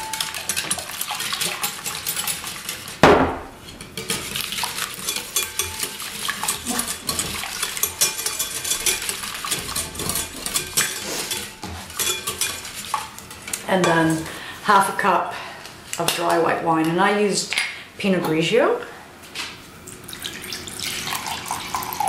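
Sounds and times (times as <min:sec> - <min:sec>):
wire whisk clinking in bowl: 0:00.0 - 0:02.8, 0:03.9 - 0:13.3
sharp knock: 0:03.0 - 0:03.6.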